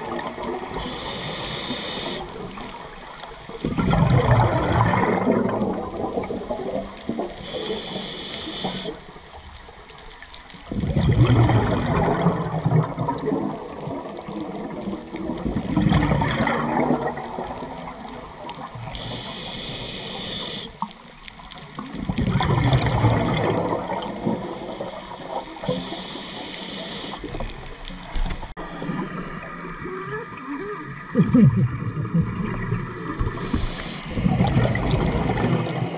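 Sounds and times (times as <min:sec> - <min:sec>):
gurgling exhaled bubbles: 0:00.0 - 0:09.2, 0:10.6 - 0:35.9
hissing regulator inhalations: 0:00.8 - 0:02.6, 0:07.4 - 0:09.1, 0:18.8 - 0:20.9, 0:25.6 - 0:27.3, 0:33.1 - 0:34.4.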